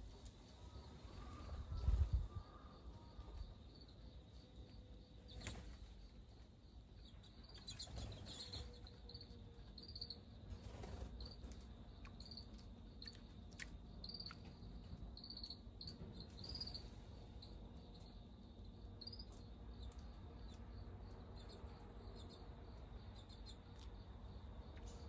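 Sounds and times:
insect chirping: 0.0s - 25.0s.

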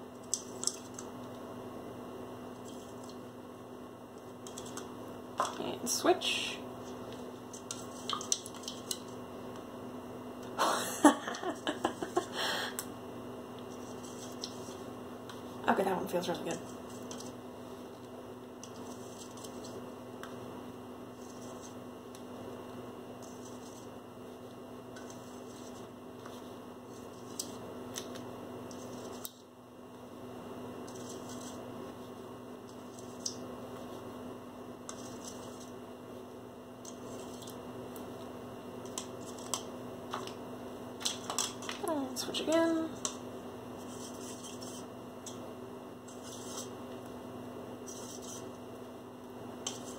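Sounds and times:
electrical hum: 0.0s - 49.9s.

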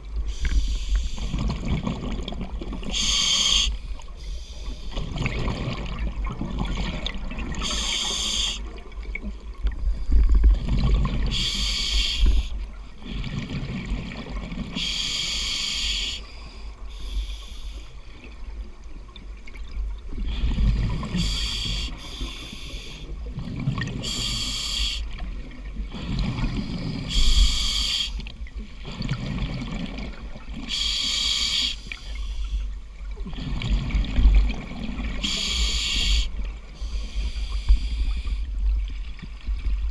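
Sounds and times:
diver breathing through regulator: 2.9s - 5.0s, 7.6s - 8.7s, 11.2s - 13.5s, 14.8s - 18.0s, 20.2s - 23.2s, 23.9s - 25.2s, 25.9s - 28.2s, 30.7s - 32.7s, 35.1s - 38.6s.

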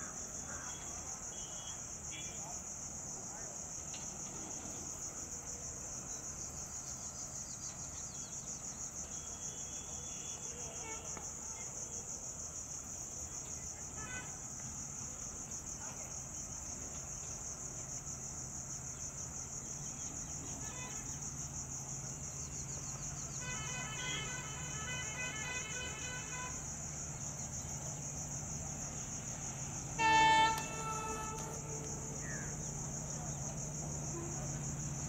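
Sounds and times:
insects chirping: 0.0s - 35.0s
diesel locomotive drone: 29.0s - 35.0s.

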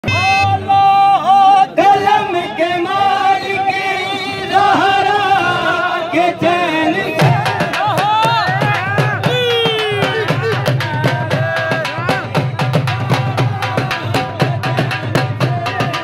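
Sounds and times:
man singing unaccompanied: 0.0s - 16.0s
drum strokes: 7.1s - 16.0s.

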